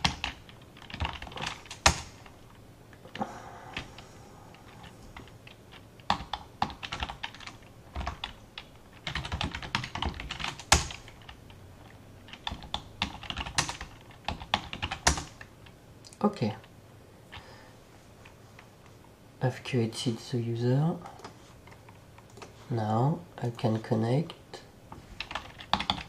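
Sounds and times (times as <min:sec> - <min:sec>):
typing on a computer keyboard: 0:00.0 - 0:02.3, 0:04.6 - 0:15.8, 0:25.2 - 0:26.0.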